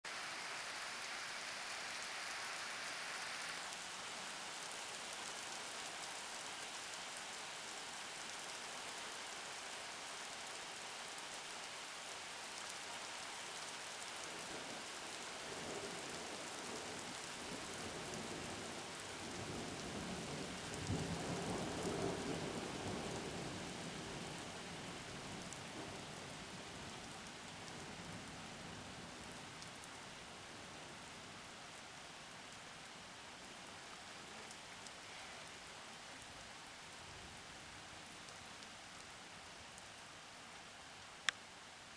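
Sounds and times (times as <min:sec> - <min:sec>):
rain hissing: 0:00.0 - 0:30.4, 0:31.2 - 0:41.9.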